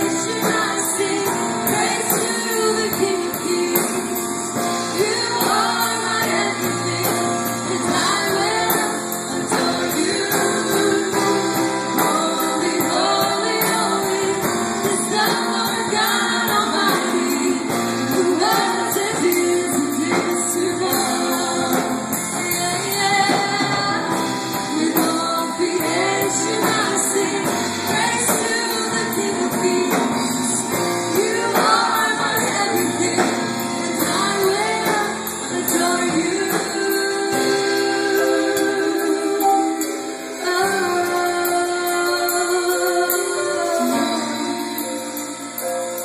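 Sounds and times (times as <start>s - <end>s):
backing singers: 0.0s - 45.5s
drums: 0.0s - 46.0s
keyboard: 0.0s - 46.0s
woman singing lead: 0.0s - 46.0s.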